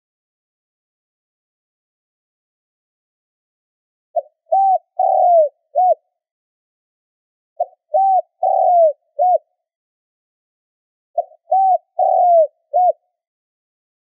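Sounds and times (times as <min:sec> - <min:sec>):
dove cooing: 0:04.2 - 0:06.0, 0:07.6 - 0:09.5, 0:11.2 - 0:13.1.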